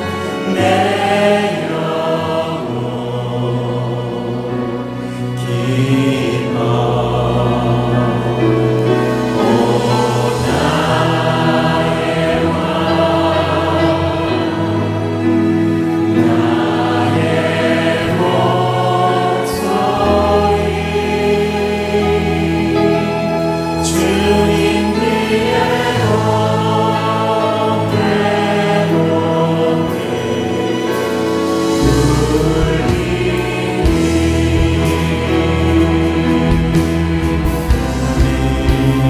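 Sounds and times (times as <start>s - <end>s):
choir singing: 0.0s - 39.0s
man singing lead: 2.5s - 8.7s.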